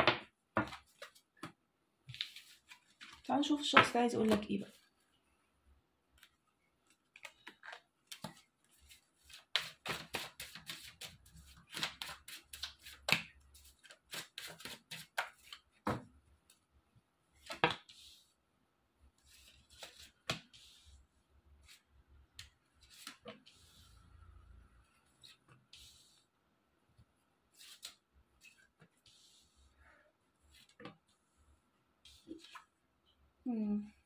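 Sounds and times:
cards being shuffled: 0:06.2 - 0:16.0, 0:27.6 - 0:29.0.

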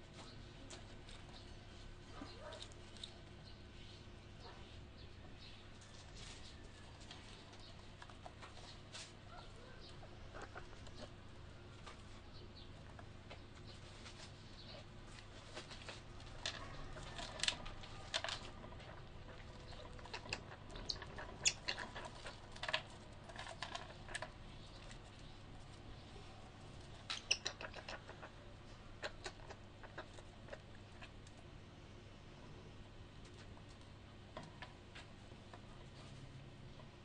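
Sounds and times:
squirrels scrabbling in a cage: 0:00.0 - 0:31.5, 0:33.1 - 0:37.0
squirrel squeaks: 0:16.6 - 0:22.7, 0:26.8 - 0:31.1.

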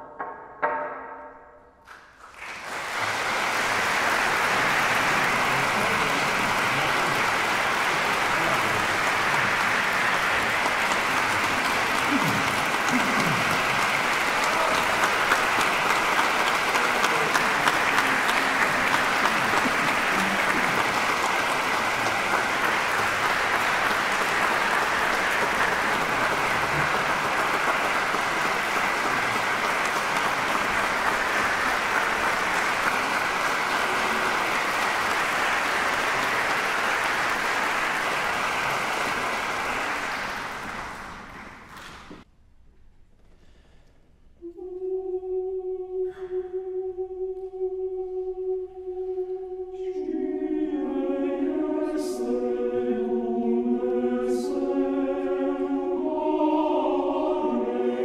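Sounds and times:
large audience applauding: 0:01.9 - 0:42.2.

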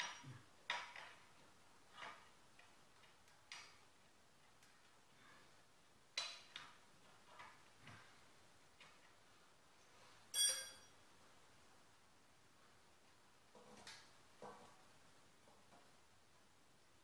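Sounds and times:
hand tools clinking on metal: 0:10.3 - 0:10.9
ringing metal clink: 0:10.3 - 0:11.0.

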